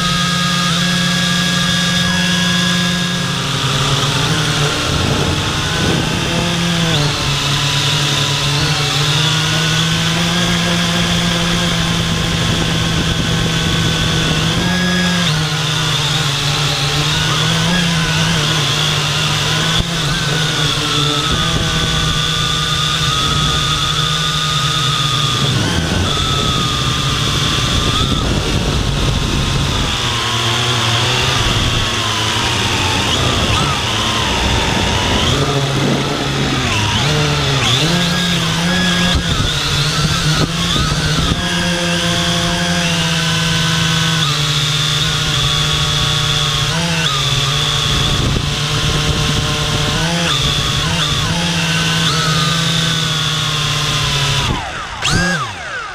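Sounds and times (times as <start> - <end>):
drone motors buzzing whine: 0.0 - 55.9.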